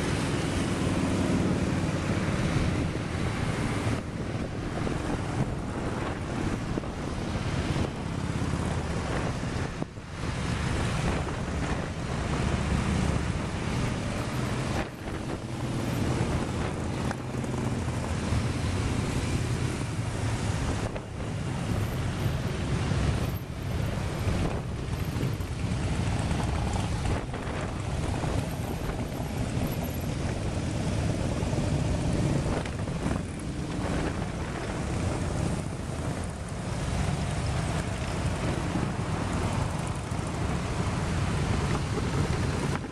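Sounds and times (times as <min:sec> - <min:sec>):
motorcycles riding past: 0:00.0 - 0:42.9
wind noise on microphone: 0:00.0 - 0:42.9.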